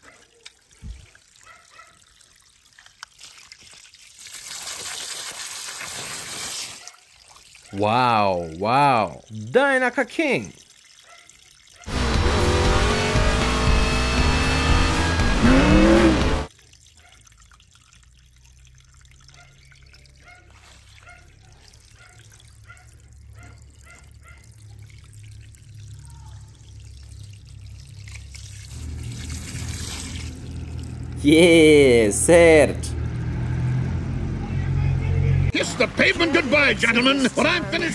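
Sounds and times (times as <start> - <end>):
race car engine at speed: 11.9 - 16.5, 32.7 - 36.9.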